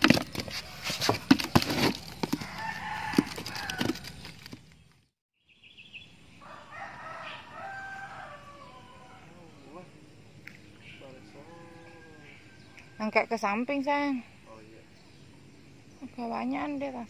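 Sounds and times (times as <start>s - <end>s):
rooster crowing: 2.3s - 4.2s, 6.4s - 9.7s, 11.0s - 13.3s.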